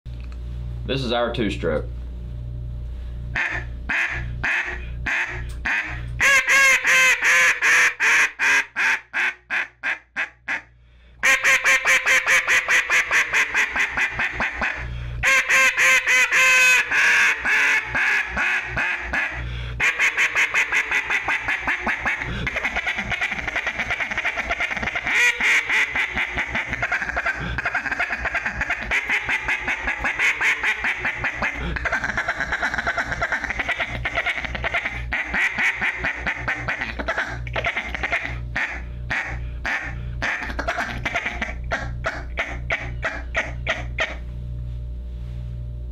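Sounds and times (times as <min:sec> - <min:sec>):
duck call quacks: 0:03.4 - 0:44.2.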